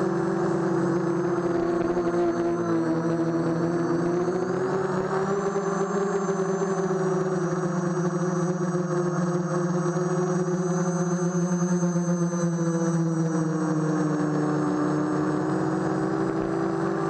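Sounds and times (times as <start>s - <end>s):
drone motors humming: 0.0s - 17.0s.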